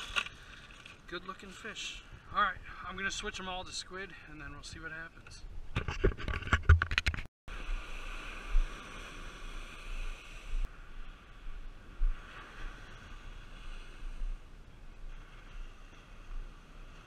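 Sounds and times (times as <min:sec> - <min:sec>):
wind rumbling on microphone: 0:04.5 - 0:17.0
ocean surf washing up: 0:07.5 - 0:17.0.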